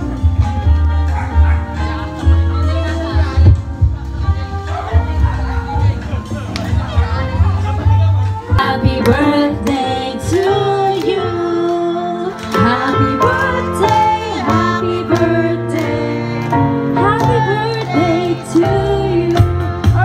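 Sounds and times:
person singing: 7.0 - 20.0.

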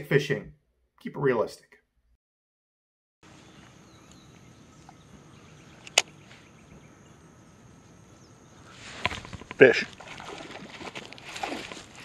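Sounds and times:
sharp click: 5.8 - 6.1.

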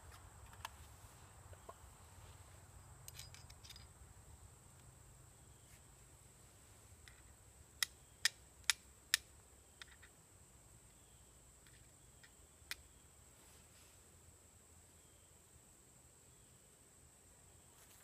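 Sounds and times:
steel striker clicking on flint: 7.0 - 10.1, 11.6 - 12.9.

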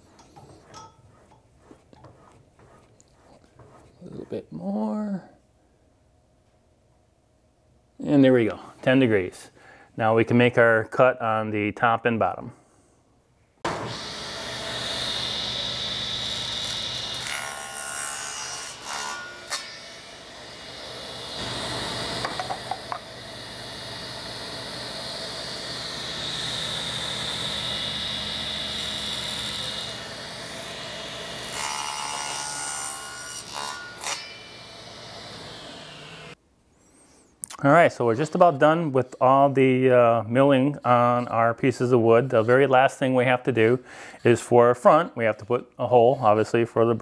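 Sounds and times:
table saw cutting wood: 13.7 - 36.4.

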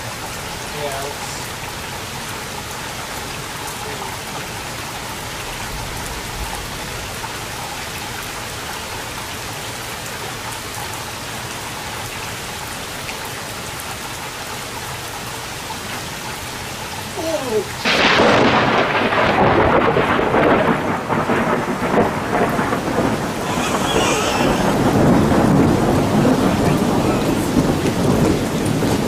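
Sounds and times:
rain hissing: 0.0 - 29.0.

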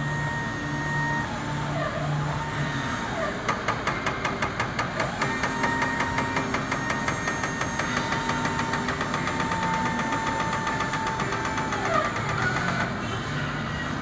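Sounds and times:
steady whine: 0.0 - 14.0
truck engine knocking: 3.1 - 14.0.

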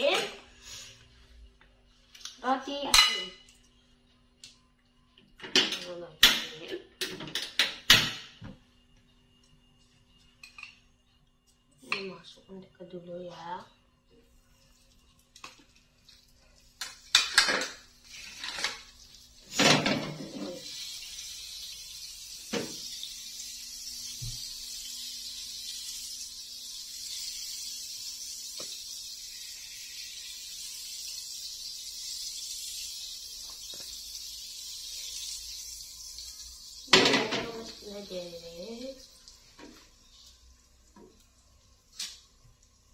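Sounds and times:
metal tongs clanking on pan: 2.9 - 3.3
butter sizzling in frying pan: 15.2 - 19.6, 20.2 - 42.9.

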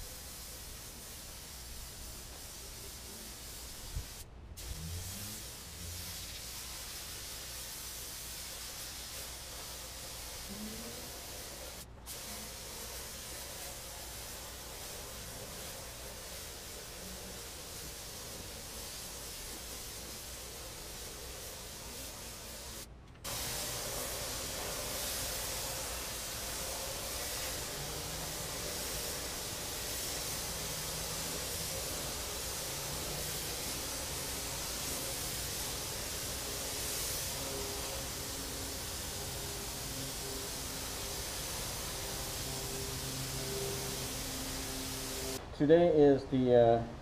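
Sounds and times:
paint spray gun hissing: 0.0 - 45.4.

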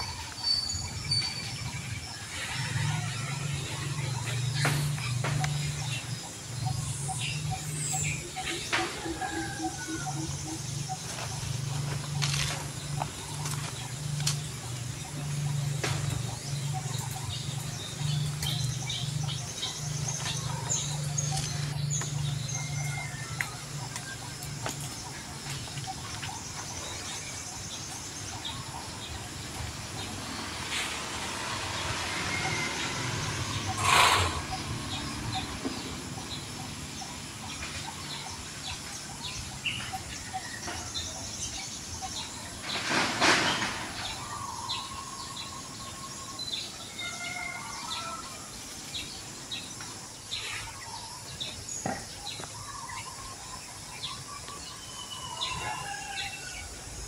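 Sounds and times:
bird chirps and calls: 32.1 - 43.0.

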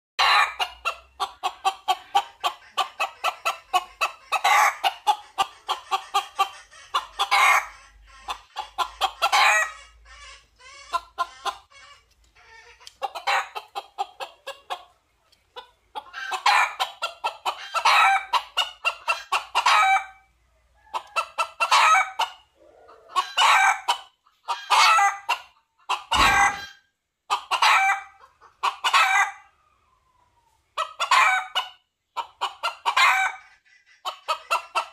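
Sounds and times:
rooster clucking calls: 0.2 - 15.0, 15.6 - 29.6, 30.8 - 34.9
loud deep thump: 26.2 - 26.7.

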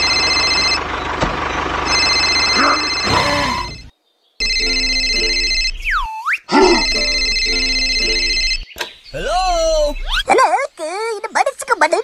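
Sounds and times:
phone ringtone melody: 0.0 - 0.8, 1.8 - 8.7
cartoon whistle gliding: 2.5 - 3.9, 5.8 - 8.1.

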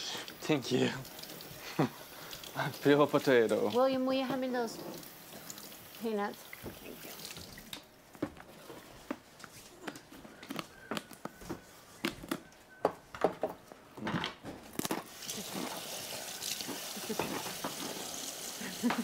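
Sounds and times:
utensils and dishes clattering: 13.3 - 19.0.

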